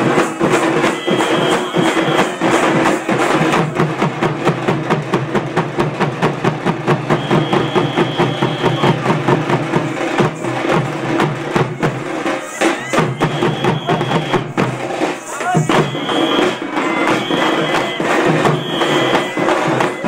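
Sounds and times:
frame drums played with sticks: 0:00.0 - 0:20.0
high held tone: 0:00.8 - 0:02.9, 0:07.1 - 0:10.7, 0:11.6 - 0:20.0.

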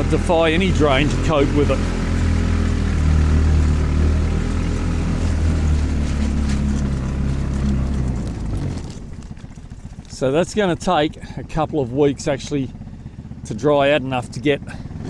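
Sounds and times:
vehicle engine running: 0:00.0 - 0:15.0.

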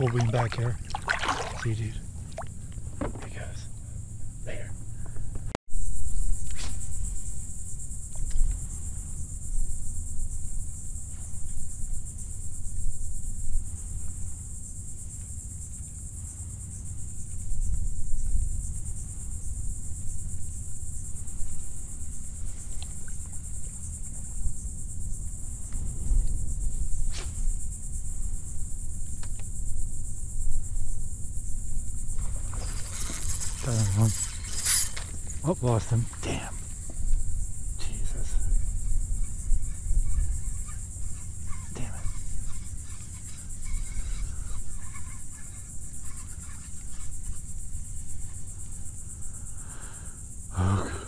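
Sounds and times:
high-pitched insect drone: 0:00.0 - 0:05.0, 0:05.7 - 0:51.0
wind rumble on microphone: 0:16.8 - 0:35.4, 0:36.4 - 0:44.4.

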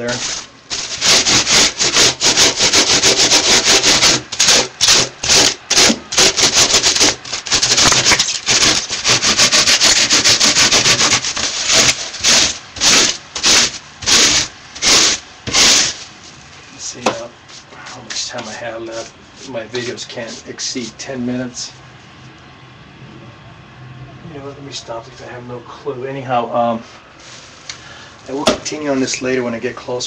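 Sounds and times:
rasp scraping foam: 0:00.0 - 0:16.4, 0:17.1 - 0:21.0.

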